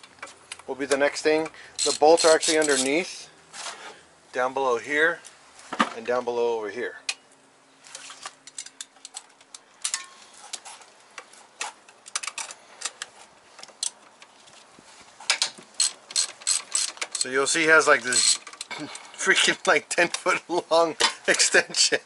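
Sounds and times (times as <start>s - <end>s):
socket wrench clicking: 15.4s - 17.3s.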